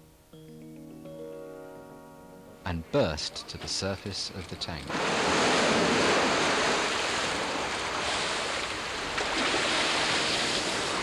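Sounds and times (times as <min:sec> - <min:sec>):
water churning and sloshing: 0:04.3 - 0:11.0
loud splash: 0:04.9 - 0:11.0.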